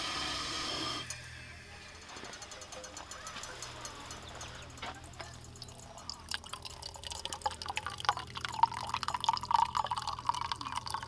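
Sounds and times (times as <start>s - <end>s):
water pouring into metal mug: 5.5s - 11.0s.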